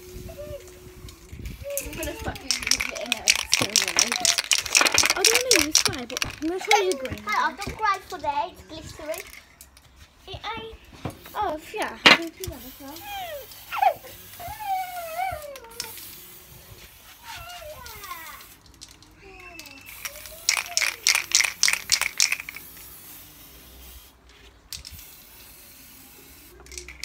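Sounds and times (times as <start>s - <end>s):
child whining: 0.1s - 0.9s, 1.5s - 2.6s, 13.0s - 16.1s, 17.2s - 18.5s
spray can ball rattling: 1.0s - 9.9s, 11.2s - 27.0s.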